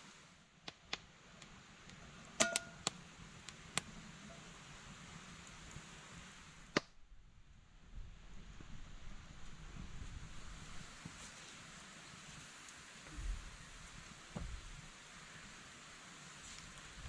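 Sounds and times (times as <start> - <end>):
faint steady hiss: 0.0 - 17.0
metal kettle clinking against stones: 2.4 - 2.8.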